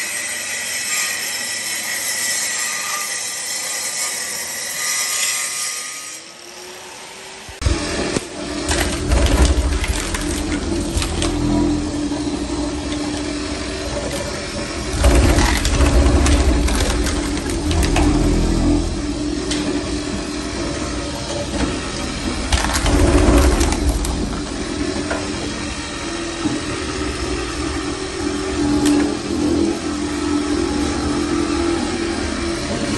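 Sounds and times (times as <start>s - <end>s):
floor stripper humming: 7.5s - 32.9s
wood cracking and splintering: 8.6s - 20.1s, 21.2s - 25.0s.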